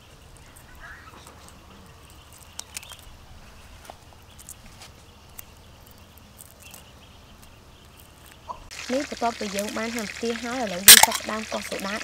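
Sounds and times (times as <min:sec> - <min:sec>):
low steady background noise: 0:00.0 - 0:12.0
shrimp shells snapping: 0:10.8 - 0:12.0.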